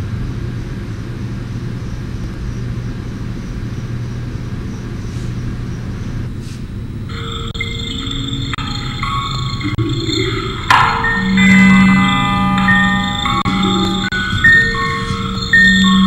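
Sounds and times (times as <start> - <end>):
low rumbling drone with hiss: 0.0 - 16.0
high electronic tones: 7.1 - 16.0.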